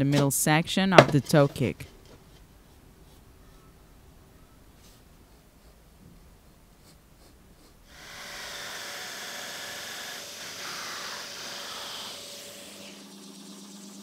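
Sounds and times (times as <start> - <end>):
drum sander humming: 6.0 - 14.0
jigsaw cutting plywood: 7.2 - 14.0.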